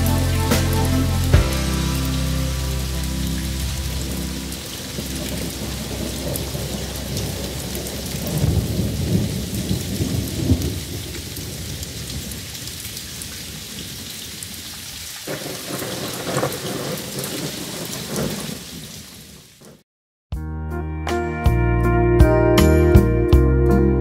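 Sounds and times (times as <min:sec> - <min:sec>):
steady rain falling: 0:00.0 - 0:19.8
rolling thunder: 0:00.5 - 0:14.0, 0:15.3 - 0:18.9.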